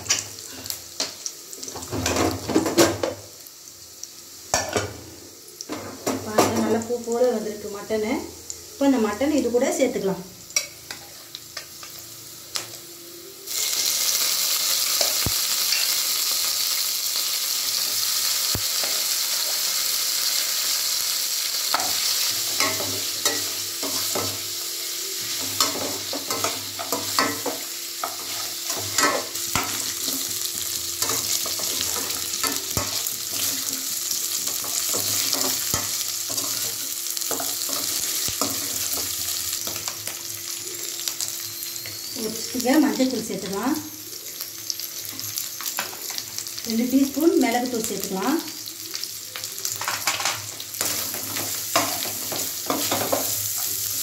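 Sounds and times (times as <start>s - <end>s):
meat sizzling in hot oil: 0.0s - 54.0s.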